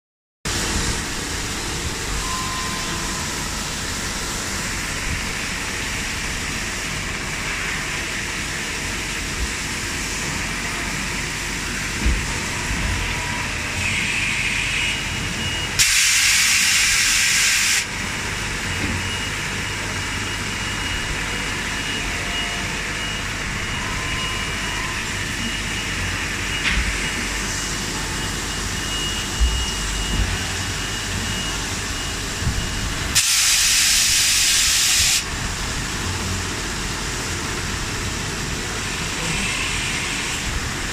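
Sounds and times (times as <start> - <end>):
loud hiss: 15.8 - 17.9, 33.2 - 35.3.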